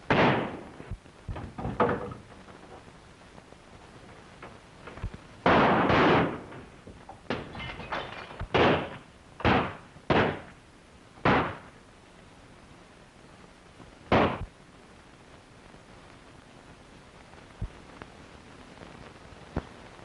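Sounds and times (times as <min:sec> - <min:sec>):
gunshots: 0:00.0 - 0:00.8, 0:05.4 - 0:06.7, 0:07.3 - 0:10.5, 0:11.2 - 0:11.7, 0:14.1 - 0:14.5.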